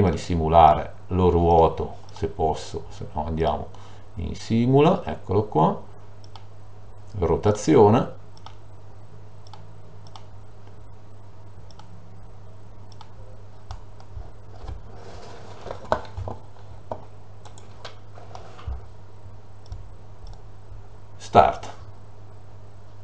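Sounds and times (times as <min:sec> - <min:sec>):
steady low hum: 0:00.0 - 0:23.0
mouse and key clicks: 0:08.4 - 0:08.6, 0:09.4 - 0:10.3, 0:11.7 - 0:12.0.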